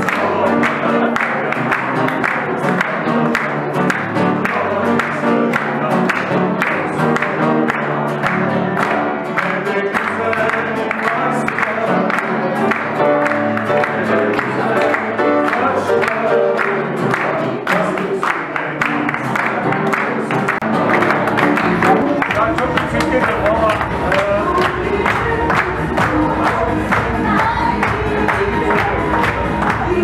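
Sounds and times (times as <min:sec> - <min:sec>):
hands clapping: 0:00.0 - 0:30.0
strummed acoustic guitar: 0:00.0 - 0:30.0
woman singing: 0:24.2 - 0:30.0.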